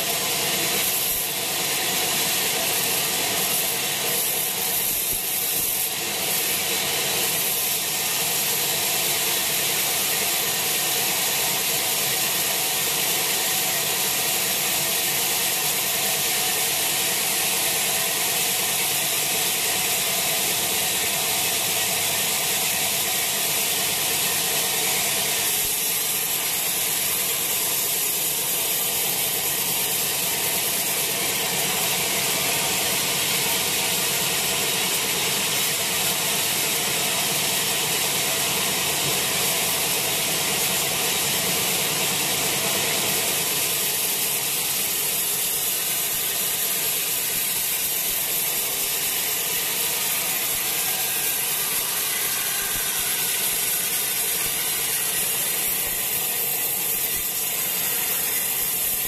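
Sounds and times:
band saw cutting log: 0:44.8 - 0:59.0.

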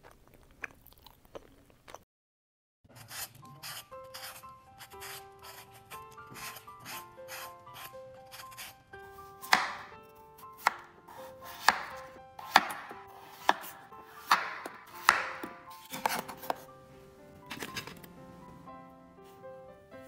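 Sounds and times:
knife slicing potatoes: 0:02.9 - 0:16.7
soft background music: 0:02.9 - 0:20.0.

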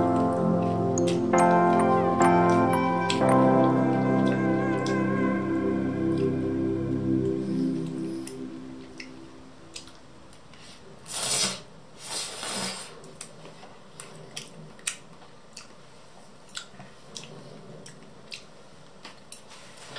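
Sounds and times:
background music: 0:00.0 - 0:09.8.

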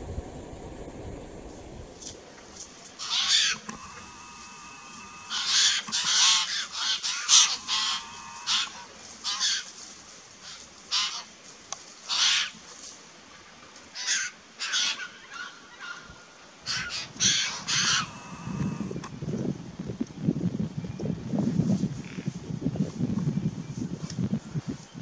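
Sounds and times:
harsh rasping bird calls: 0:03.0 - 0:09.7, 0:10.4 - 0:11.3, 0:12.1 - 0:12.6, 0:14.0 - 0:19.0.

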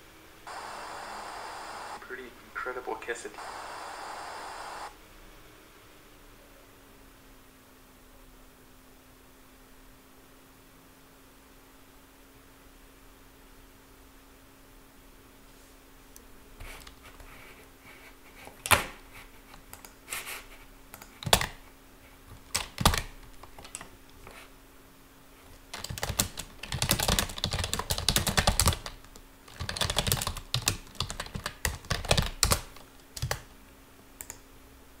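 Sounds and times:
computer keyboard typing: 0:21.0 - 0:21.6, 0:22.4 - 0:23.9, 0:25.7 - 0:33.5.

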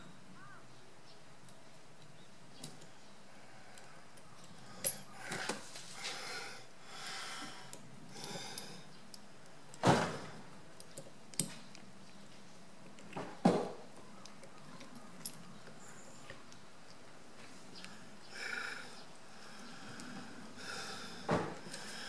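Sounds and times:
small metal clicks and scrapes: 0:10.5 - 0:13.3.

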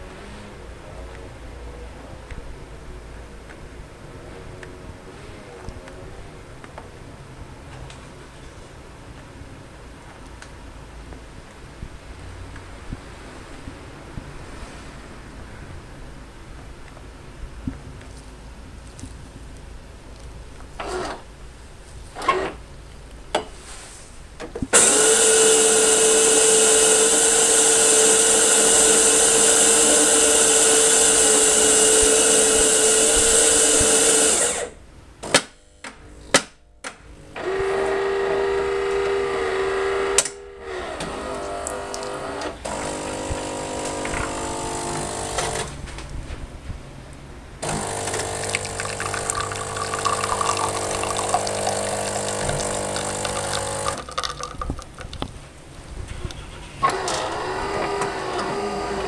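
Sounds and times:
coffee grinder running: 0:24.8 - 0:34.7, 0:37.4 - 0:40.3, 0:41.0 - 0:45.7, 0:47.6 - 0:55.2
pump humming: 0:37.4 - 0:45.7, 0:47.6 - 0:55.1
short motor run: 0:47.6 - 0:54.5
coffee pouring into cup: 0:47.6 - 0:55.3.

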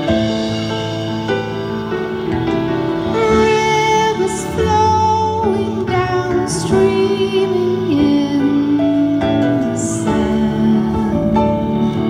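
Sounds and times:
band playing slow song: 0:00.0 - 0:12.0
woman singing with vibrato: 0:03.0 - 0:12.0.

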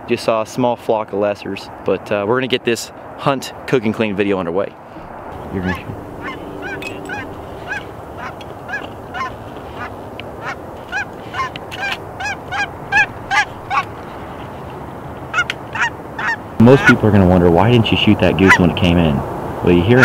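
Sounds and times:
geese honking: 0:05.0 - 0:14.0, 0:15.3 - 0:17.0.

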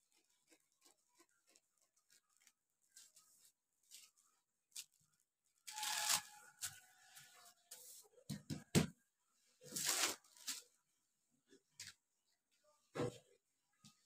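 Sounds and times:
paper crinkling and rustling: 0:00.0 - 0:07.9, 0:09.6 - 0:10.8.

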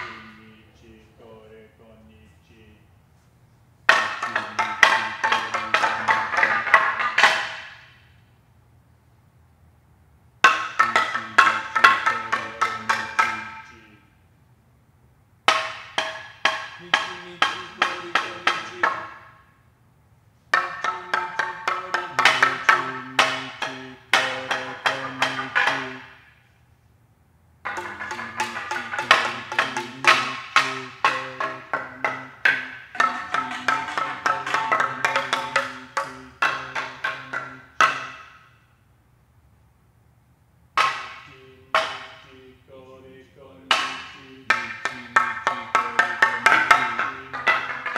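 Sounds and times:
mallets striking wooden planks: 0:00.0 - 0:01.1, 0:03.8 - 0:08.3, 0:10.4 - 0:14.1, 0:15.4 - 0:19.6, 0:20.4 - 0:26.7, 0:27.6 - 0:38.9, 0:40.7 - 0:47.9.

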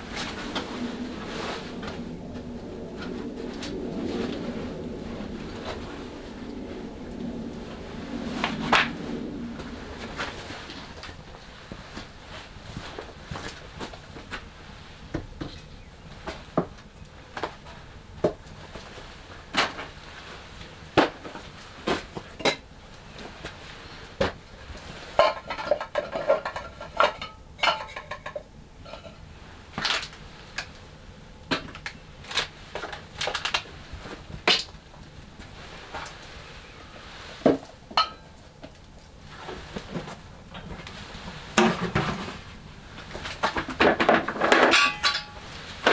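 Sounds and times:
glass clinking: 0:38.0 - 0:38.3.

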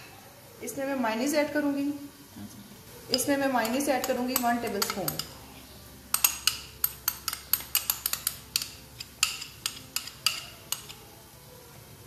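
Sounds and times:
spoon clinking against glass bowl: 0:03.1 - 0:05.4, 0:06.1 - 0:11.0.

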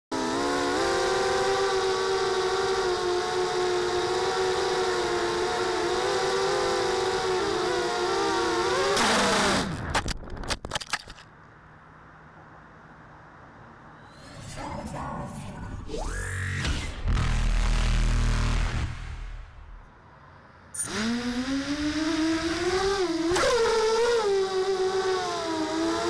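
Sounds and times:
quadcopter motors buzzing: 0:00.1 - 0:09.7, 0:20.8 - 0:26.0
drone crashing into grass: 0:16.6 - 0:19.8.

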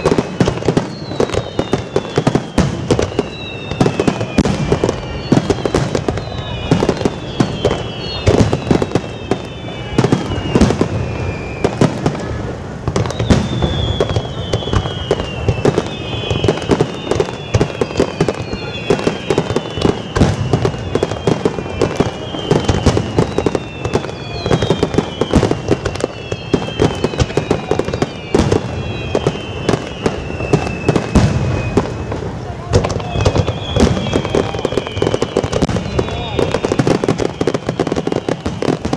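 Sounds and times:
firework crackles: 0:00.0 - 0:38.9.

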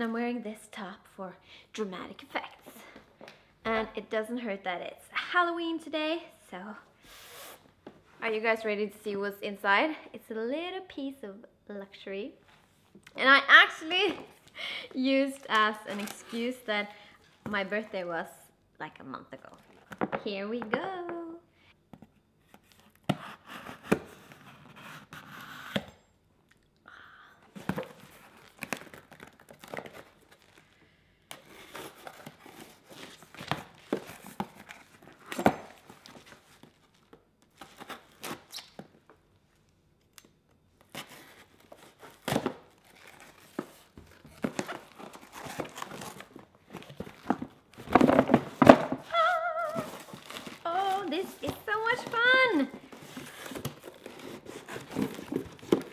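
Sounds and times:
cardboard scraping and rustling: 0:41.0 - 0:55.9
packing tape tearing: 0:49.6 - 0:52.2, 0:52.8 - 0:55.9.

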